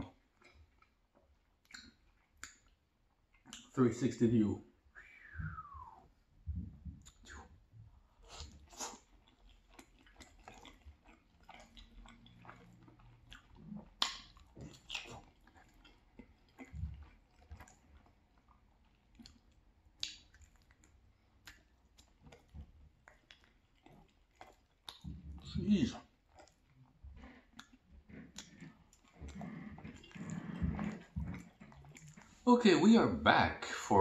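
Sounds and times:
chewing pasta: 0.0s - 4.2s, 5.2s - 33.2s.

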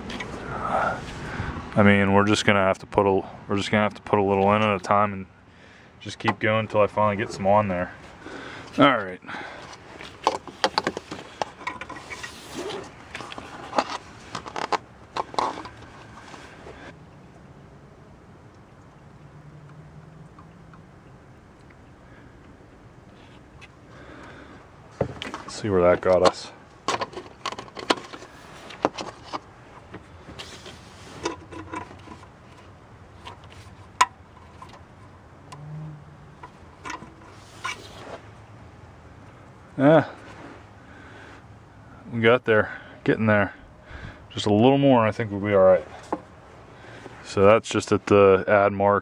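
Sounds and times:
clicks and knocks of handled hoses: 8.0s - 17.0s, 23.6s - 35.6s, 36.4s - 38.1s
sleeve rustling: 37.3s - 38.4s.

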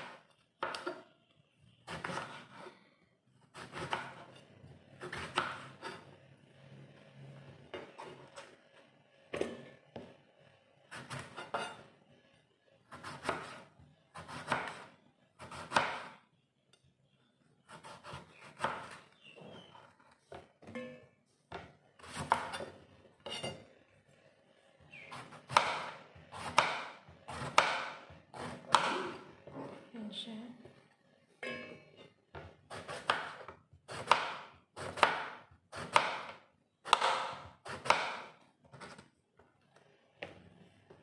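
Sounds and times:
knife slicing eggplant: 1.9s - 2.7s, 3.6s - 4.4s, 5.0s - 6.0s, 12.9s - 16.2s, 17.7s - 19.7s, 22.0s - 23.6s, 32.4s - 39.1s.

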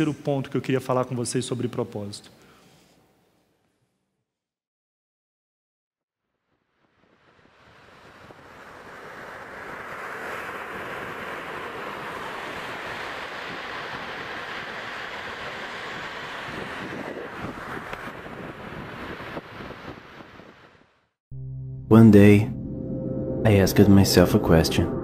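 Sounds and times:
waves breaking on beach: 7.0s - 20.9s.

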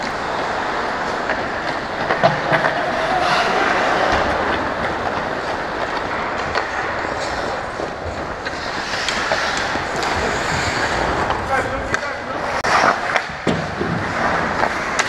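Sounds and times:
skate blades scraping ice: 0.0s - 15.0s
hockey stick and puck clicks: 3.4s - 15.0s.

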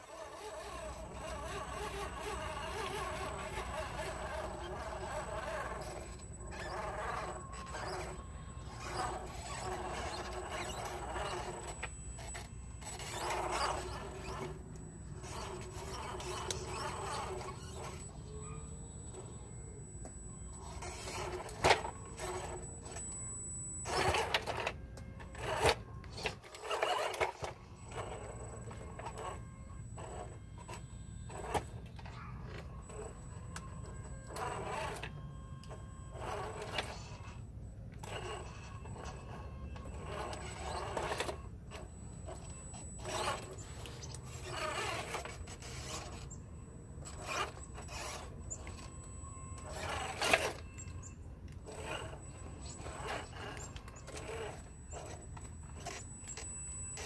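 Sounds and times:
small electric motor whirring: 0.0s - 57.0s.

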